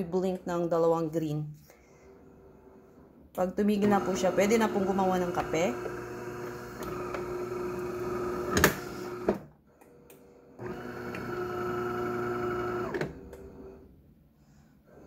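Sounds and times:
coffee machine humming: 0:03.8 - 0:09.4, 0:10.0 - 0:13.8.

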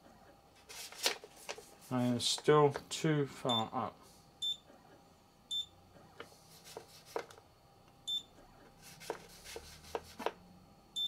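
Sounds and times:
paper rustling: 0:00.6 - 0:02.1.

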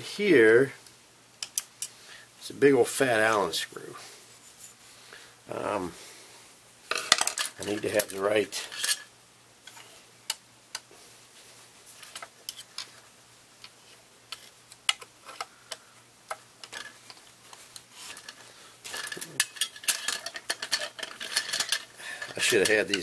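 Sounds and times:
metal wrenches clicking and clinking: 0:18.0 - 0:23.0.

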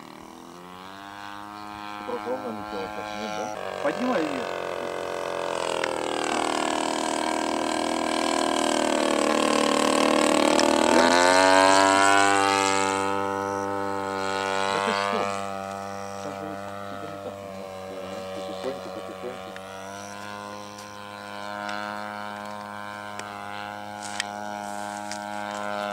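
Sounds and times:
model plane engine buzzing: 0:00.0 - 0:25.9.

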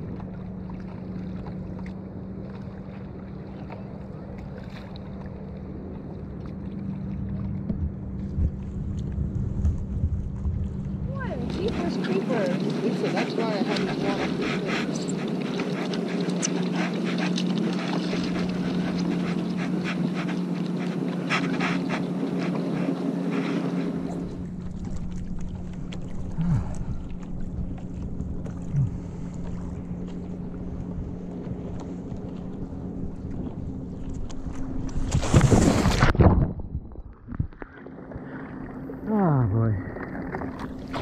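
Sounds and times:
small waves lapping: 0:00.0 - 0:36.4, 0:37.1 - 0:41.0
steady low hum: 0:00.0 - 0:41.0
wind on microphone: 0:07.6 - 0:15.8.

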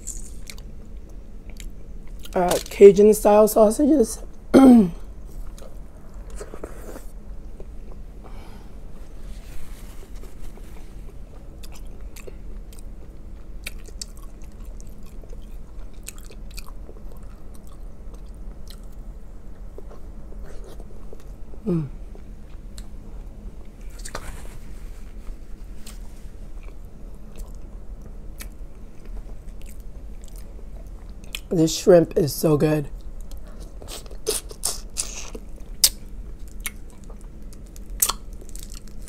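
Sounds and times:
person chewing: 0:00.0 - 0:02.7, 0:05.4 - 0:08.0, 0:09.9 - 0:24.4, 0:25.2 - 0:31.5, 0:33.0 - 0:39.0
person humming: 0:21.6 - 0:22.0.

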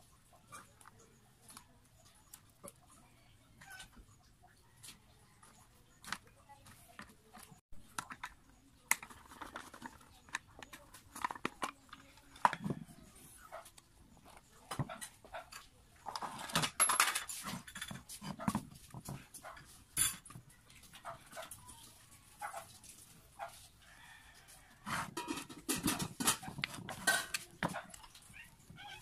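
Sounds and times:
handling clicks and knocks on metal pump: 0:24.9 - 0:28.2.

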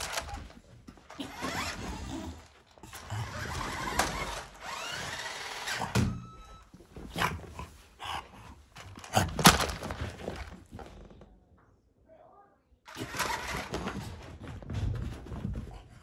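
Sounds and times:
toy car electric motor whirring: 0:00.0 - 0:06.2, 0:12.9 - 0:13.8.

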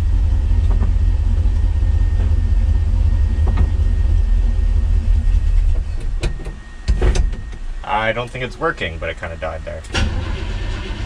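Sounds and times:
truck engine rumbling and stalling: 0:00.0 - 0:06.5, 0:09.8 - 0:11.0.

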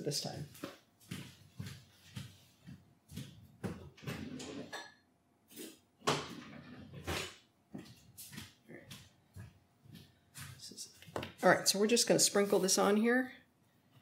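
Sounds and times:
kitchen utensils clattering: 0:04.0 - 0:05.0.

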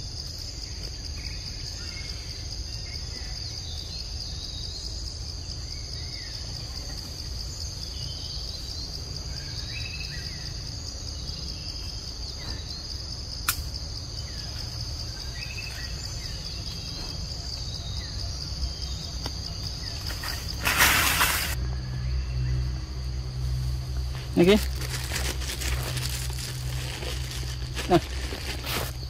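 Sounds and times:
insects droning: 0:00.0 - 0:29.0
sharp click: 0:13.4 - 0:13.7.

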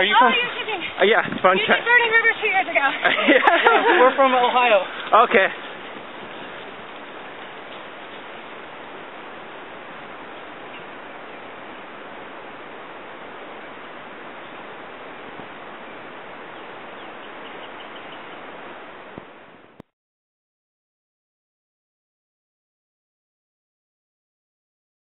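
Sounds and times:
outdoor background noise: 0:00.0 - 0:19.8
faint bird chirps: 0:13.6 - 0:18.6.

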